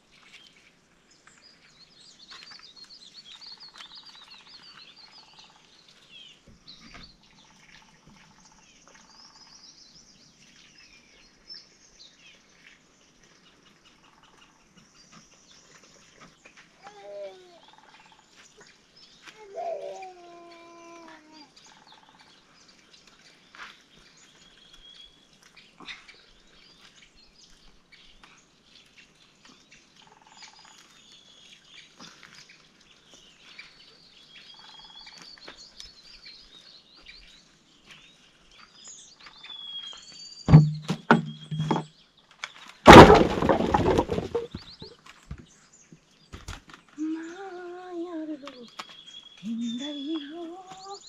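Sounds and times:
small birds chirping: 0:00.0 - 0:42.9, 0:44.4 - 0:51.0
sharp knocks: 0:40.5 - 0:41.9
loud rough crash: 0:42.9 - 0:44.6.

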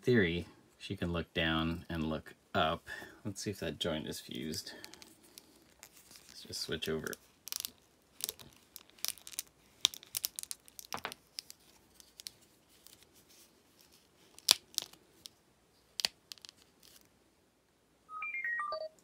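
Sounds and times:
plastic action figure clicks and creaks: 0:04.8 - 0:13.1, 0:14.3 - 0:17.1.

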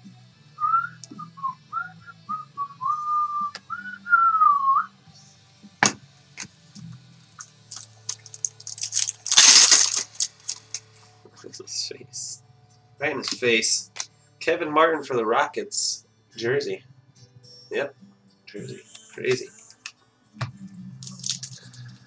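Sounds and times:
person whistling a tune: 0:00.6 - 0:04.9
cards rustling: 0:07.7 - 0:10.8, 0:21.0 - 0:21.8
sharp snap: 0:13.2 - 0:14.1.

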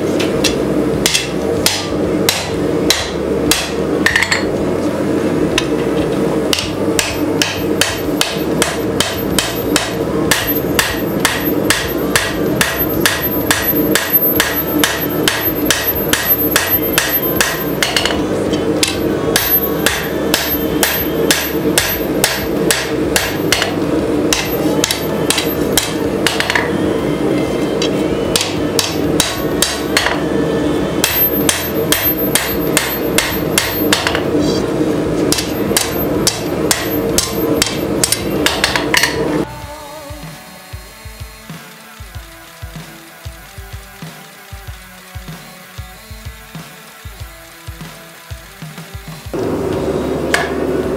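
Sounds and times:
steady low hum: 0:00.0 - 0:50.9
hammer striking metal on anvil: 0:00.2 - 0:04.5, 0:06.5 - 0:27.0, 0:27.6 - 0:30.4, 0:31.0 - 0:34.4, 0:35.3 - 0:39.5, 0:50.3 - 0:50.8.

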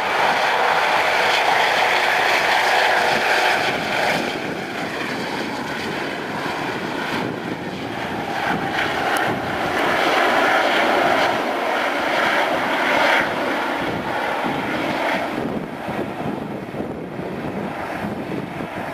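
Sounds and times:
helicopter turbine whine and rotor: 0:00.0 - 0:18.9.

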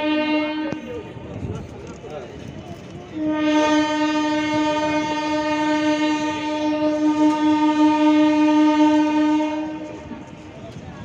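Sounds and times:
locomotive air horn: 0:00.0 - 0:01.0, 0:03.2 - 0:10.1.

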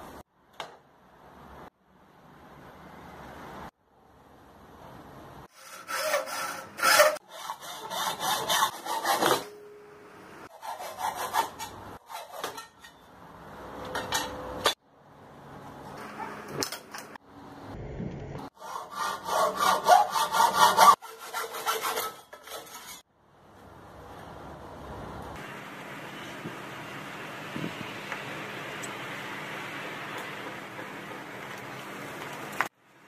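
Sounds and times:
hacksaw sawing metal: 0:05.5 - 0:09.6, 0:10.4 - 0:13.0, 0:18.6 - 0:23.0.

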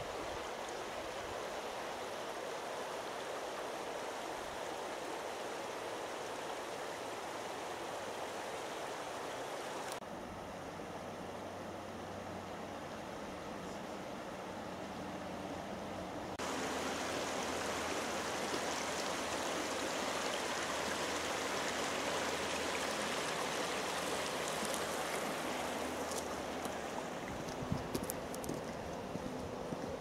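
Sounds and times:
river water rushing over stones: 0:16.3 - 0:30.0.

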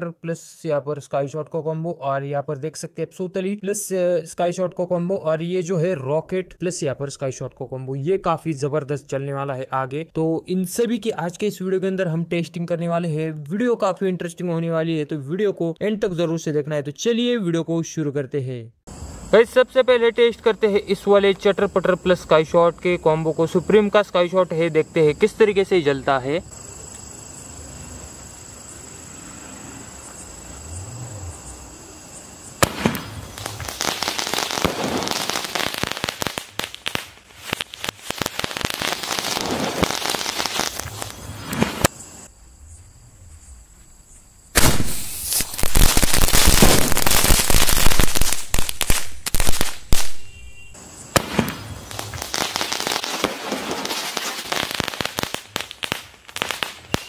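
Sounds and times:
fireworks bangs: 0:32.4 - 0:42.0, 0:44.5 - 0:57.0
firecrackers crackling and popping: 0:32.6 - 0:41.9, 0:44.6 - 0:57.0.

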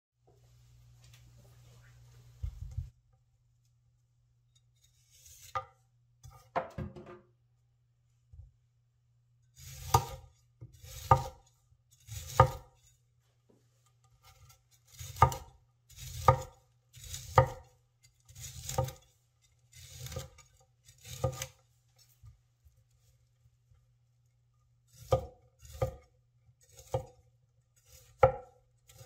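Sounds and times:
cleaver chopping broccoli on wood: 0:09.8 - 0:11.4, 0:12.1 - 0:12.7, 0:14.3 - 0:17.7, 0:18.3 - 0:19.0, 0:19.7 - 0:20.4, 0:21.0 - 0:21.6, 0:24.9 - 0:26.0, 0:26.6 - 0:27.2, 0:27.8 - 0:29.0.

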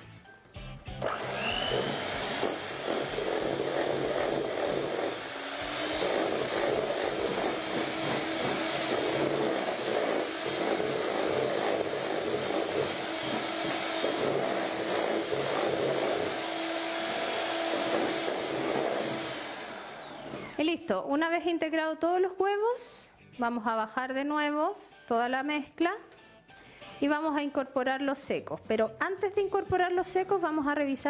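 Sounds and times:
electric hand mixer whisking: 0:01.0 - 0:20.9.

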